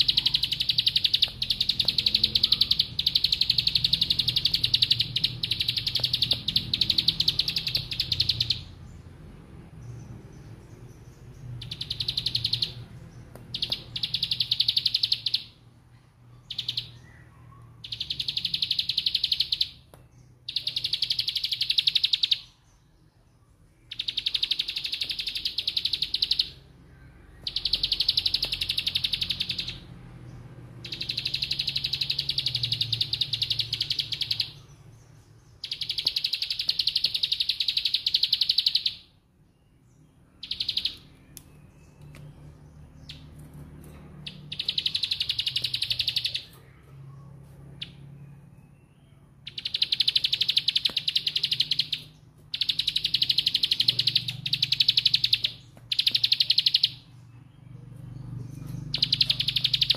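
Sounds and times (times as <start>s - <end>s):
bird singing buzzing trills: 0.0s - 9.0s, 9.8s - 15.6s, 23.9s - 39.2s, 40.4s - 46.8s, 48.8s - 59.9s.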